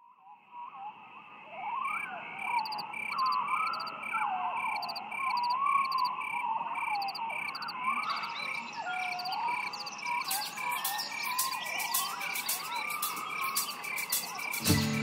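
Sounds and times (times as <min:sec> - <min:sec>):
rhythmic chirping: 0:07.5 - 0:15.0.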